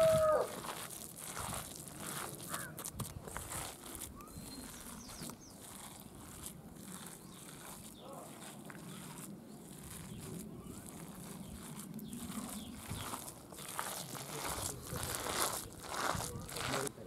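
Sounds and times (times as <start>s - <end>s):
dough squishing in a steel bowl: 0.0s - 16.9s
faint bird calls: 2.4s - 2.9s, 4.2s - 6.4s.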